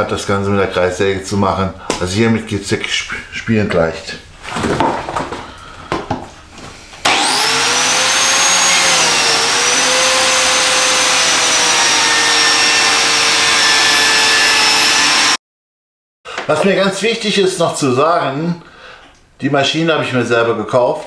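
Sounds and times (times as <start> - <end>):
biscuit joiner motor whining: 7.0 - 15.4.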